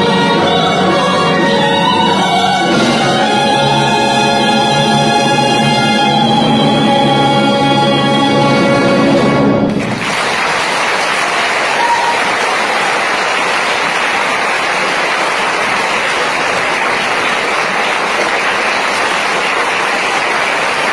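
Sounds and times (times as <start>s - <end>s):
audience applause: 9.7s - 20.9s.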